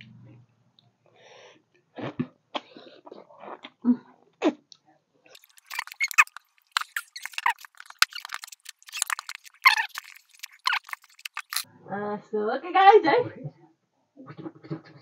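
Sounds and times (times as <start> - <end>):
people chewing meat: 5.3 - 11.6
wet mouth noises: 5.3 - 11.7, 14.2 - 15.0.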